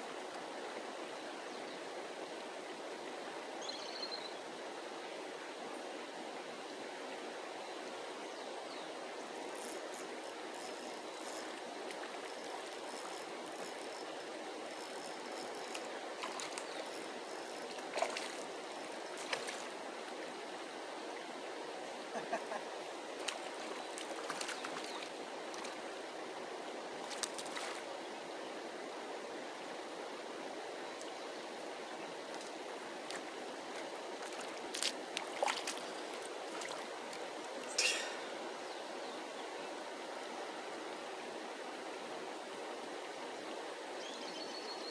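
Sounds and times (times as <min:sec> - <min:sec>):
river flowing: 0:00.0 - 0:44.9
sharp clicks and splashes: 0:14.8 - 0:19.7, 0:23.2 - 0:25.8, 0:27.0 - 0:27.8, 0:32.3 - 0:37.9.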